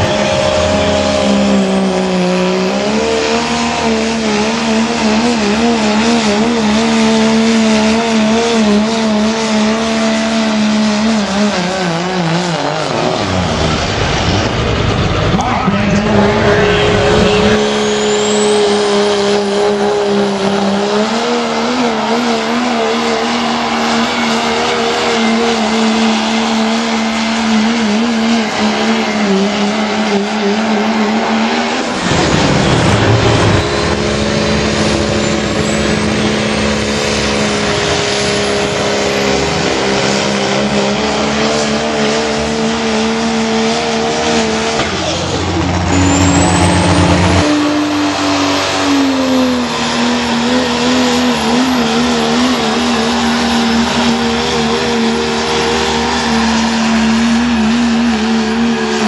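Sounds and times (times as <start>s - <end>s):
diesel truck engines at full throttle: 0.0s - 59.0s
turbo whistle climbing in pitch: 16.4s - 20.3s, 45.9s - 49.1s.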